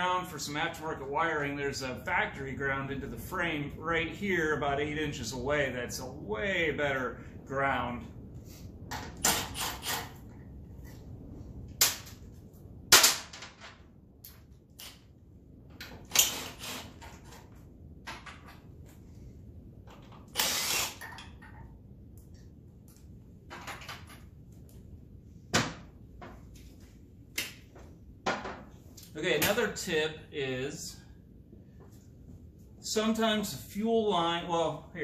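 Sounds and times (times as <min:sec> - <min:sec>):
cordless drill bursts: 0:20.3 - 0:21.1.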